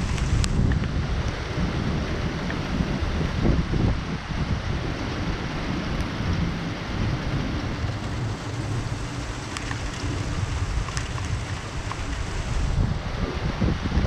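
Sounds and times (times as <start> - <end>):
low continuous rumble: 0.0 - 14.0
steady rain falling: 0.0 - 14.0
faint ticks: 7.8 - 12.3.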